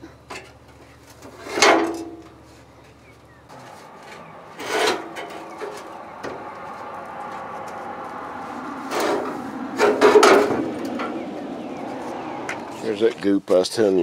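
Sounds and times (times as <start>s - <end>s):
sheet metal scraping and ringing: 3.5s - 6.4s.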